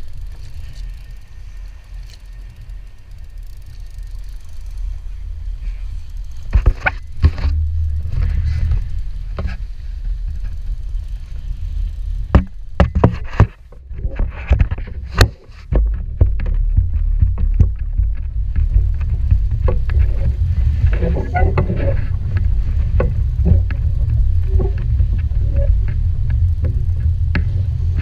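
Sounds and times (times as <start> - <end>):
wind buffeting microphone: 0.0 - 28.0
knocks and clatter: 12.3 - 28.0.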